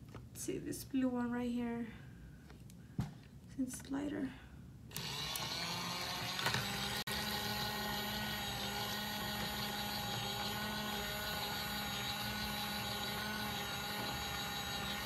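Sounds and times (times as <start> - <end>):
small electric motor running: 4.9 - 15.0.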